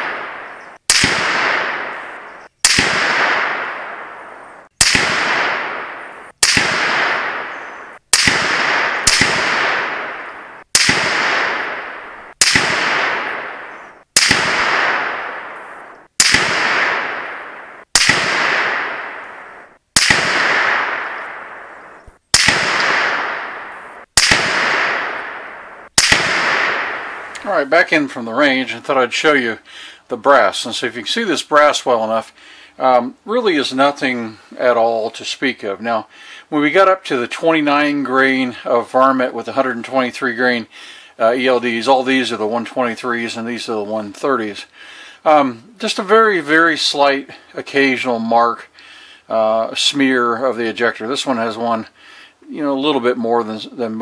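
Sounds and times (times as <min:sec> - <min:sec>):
rifle shots with echo: 0:00.0 - 0:28.8.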